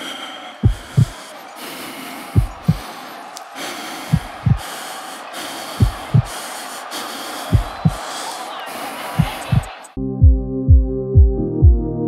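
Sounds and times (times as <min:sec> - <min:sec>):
heartbeat-like low thumps: 0:09.2 - 0:12.0.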